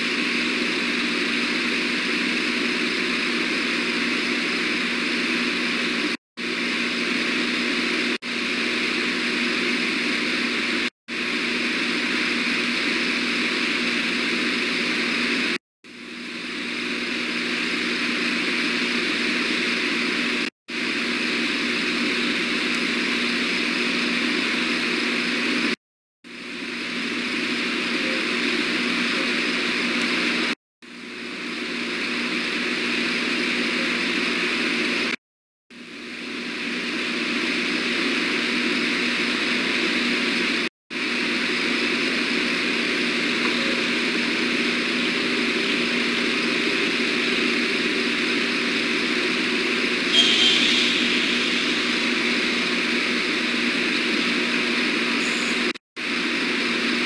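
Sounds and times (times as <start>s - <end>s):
faint hum: 0.0s - 57.0s
brief sharp sound: 50.1s - 52.2s.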